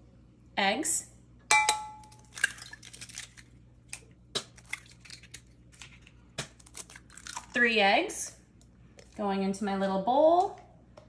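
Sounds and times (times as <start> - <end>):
glass cup ringing from tap: 1.5 - 2.1
eggshell crackling and clicking: 2.1 - 7.6.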